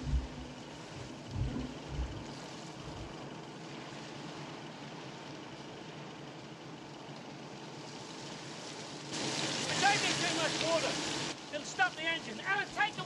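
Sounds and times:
boat engine running: 0:00.0 - 0:11.4
sea and wind hiss: 0:00.0 - 0:13.0.

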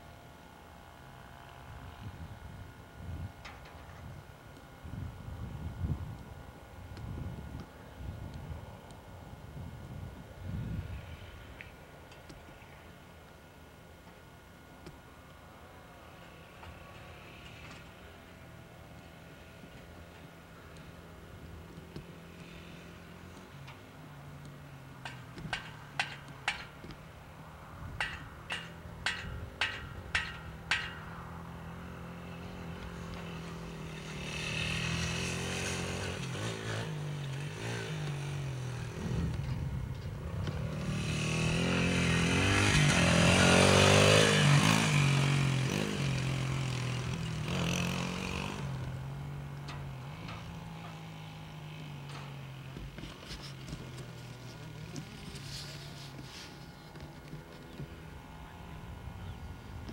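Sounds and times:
dirt bike engine revving: 0:31.7 - 0:39.6, 0:40.2 - 0:52.4.

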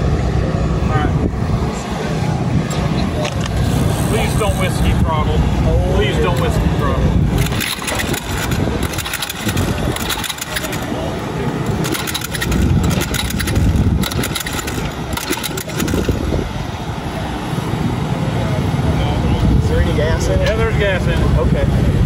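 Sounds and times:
recoil starter pulls: 0:07.3 - 0:16.4
small engine turning over: 0:07.4 - 0:10.9, 0:11.6 - 0:16.2.

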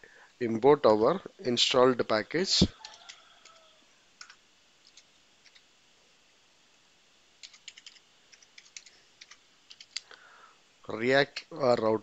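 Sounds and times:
faint keyboard typing: 0:02.7 - 0:05.7, 0:07.4 - 0:10.2.

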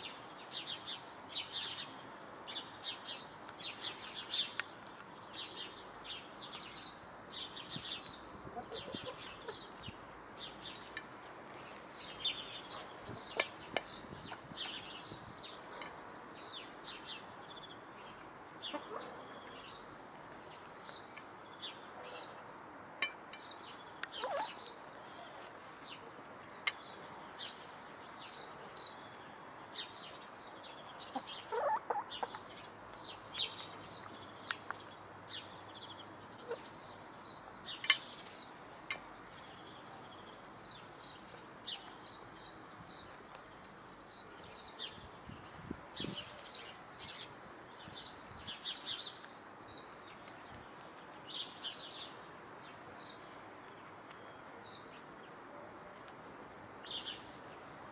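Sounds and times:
hens clucking: 0:31.1 - 0:32.4.

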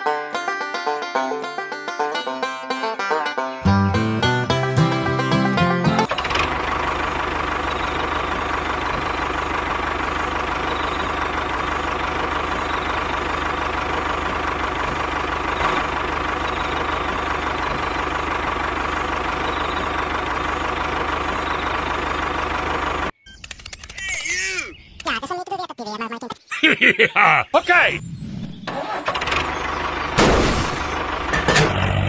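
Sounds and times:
banjo notes: 0:00.0 - 0:06.2.

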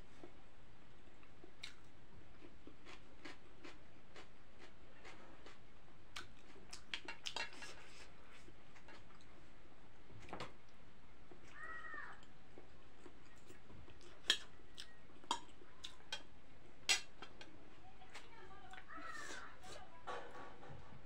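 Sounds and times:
chewing noodles: 0:01.6 - 0:09.3.

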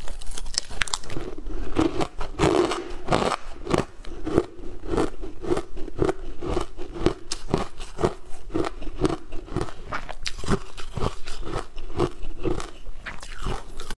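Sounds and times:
chewing crunchy shaved ice: 0:00.0 - 0:14.0.

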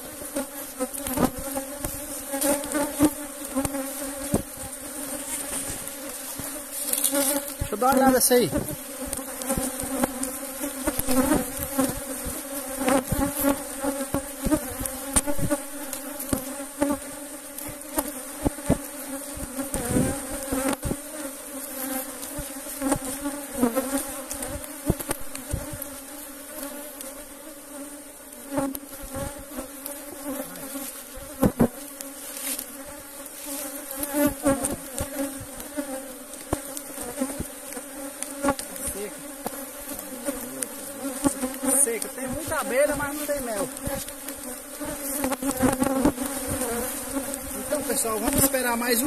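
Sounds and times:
bees buzzing: 0:00.0 - 0:49.0
knocks and clicks from hive: 0:01.0 - 0:04.7, 0:05.4 - 0:17.0, 0:17.6 - 0:21.1, 0:22.3 - 0:26.0, 0:33.6 - 0:38.8.

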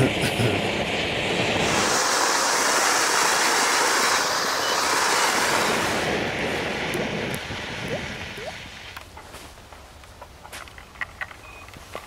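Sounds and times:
flare burning with hissing rush: 0:00.0 - 0:09.0.

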